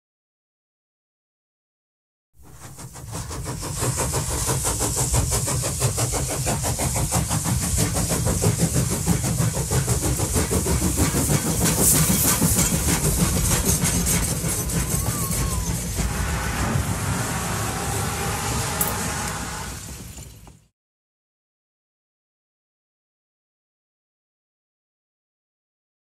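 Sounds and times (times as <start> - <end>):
steam hissing: 2.4 - 20.7
steam locomotive chuffing: 2.4 - 20.7.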